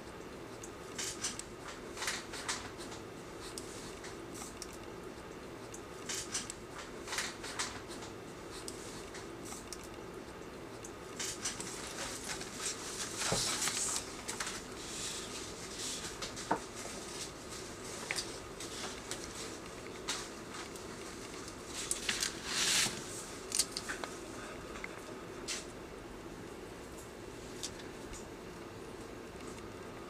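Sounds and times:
steady low hum: 0.0 - 30.0
plastic sheet rustling: 11.6 - 24.0.

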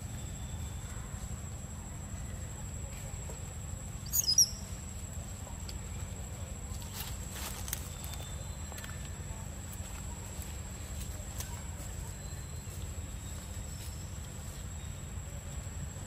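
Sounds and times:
high insect drone: 0.0 - 11.0
quick bird chirp: 4.0 - 4.7.

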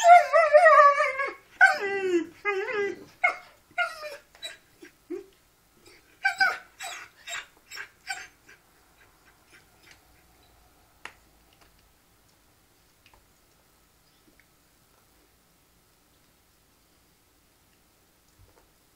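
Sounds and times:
dogs whining and yipping: 0.0 - 10.0.

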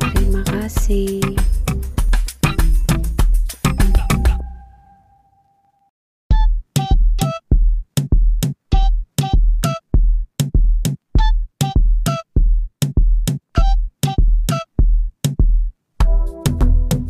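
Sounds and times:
drum machine beat: 0.0 - 4.4, 6.3 - 17.0
short synth notes: 3.8 - 5.7.

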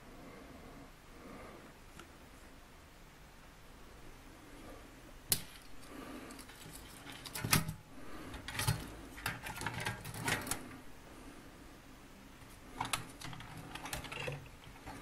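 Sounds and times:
metal toy parts clattering: 6.4 - 10.6, 12.8 - 15.0
small rattles: 12.6 - 15.0.

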